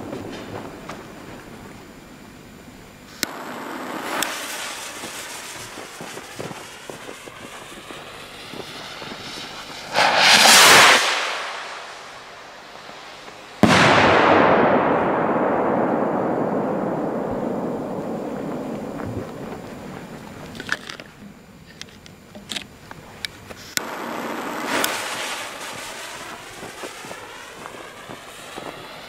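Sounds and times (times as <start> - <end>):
firework blast: 0.0 - 20.7, 23.8 - 29.0
rocket launching hiss: 3.1 - 20.5, 23.7 - 29.0.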